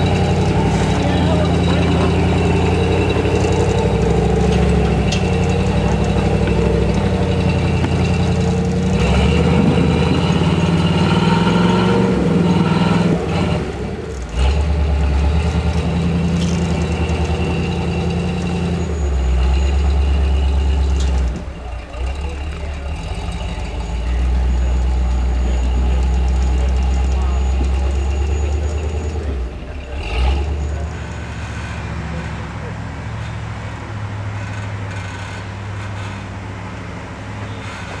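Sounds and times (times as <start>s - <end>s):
buggy engine revving: 0.0s - 38.0s.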